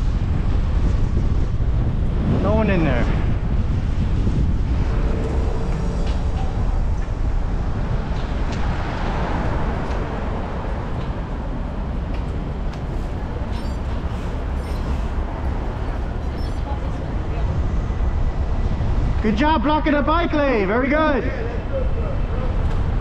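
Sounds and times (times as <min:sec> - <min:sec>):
city traffic noise: 0:00.0 - 0:23.0
wind rushing over microphone: 0:00.0 - 0:23.0
vehicle passing: 0:03.5 - 0:17.9.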